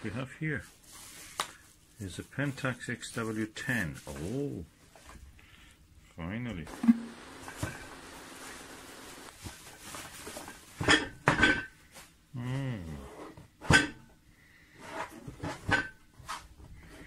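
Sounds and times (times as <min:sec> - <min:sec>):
bubble wrap rustling: 0:00.1 - 0:04.6, 0:07.4 - 0:10.8.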